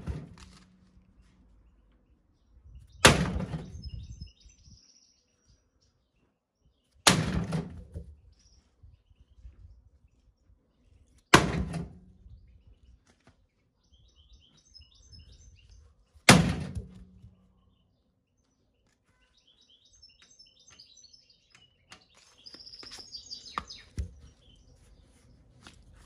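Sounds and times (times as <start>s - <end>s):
birds chirping: 1.0s - 7.0s, 12.2s - 16.3s, 17.2s - 26.0s
loud thuds with low hum: 3.0s - 4.1s, 16.3s - 17.2s.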